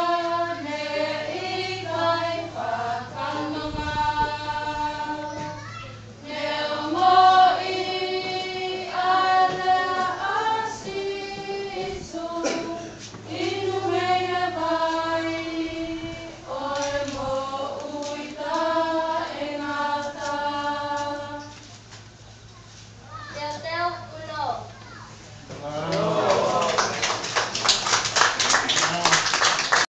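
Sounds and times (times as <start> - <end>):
group of voices singing: 0.0 - 5.5, 6.2 - 21.6.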